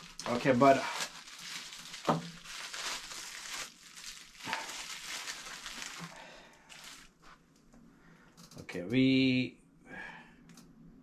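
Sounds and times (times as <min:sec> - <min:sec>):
bubble wrap crinkling: 0:00.0 - 0:07.4.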